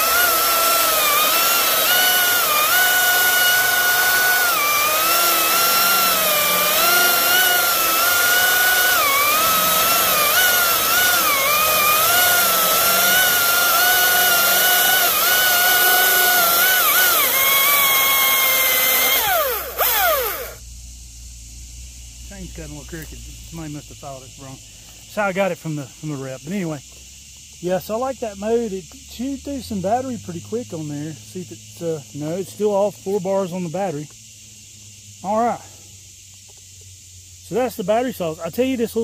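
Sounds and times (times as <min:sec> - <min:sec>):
electric chainsaw cutting wood: 0:00.0 - 0:20.6.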